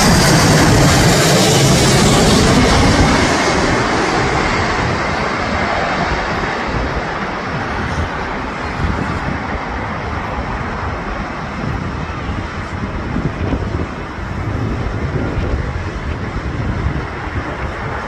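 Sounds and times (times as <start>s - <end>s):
jet passing overhead: 0.0s - 18.0s.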